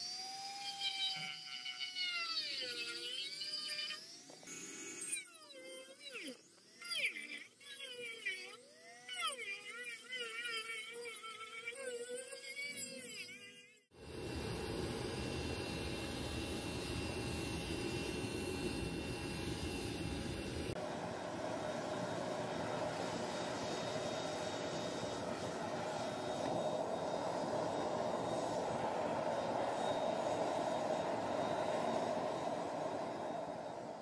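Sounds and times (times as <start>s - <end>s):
furnace roaring: 13.9s - 34.0s.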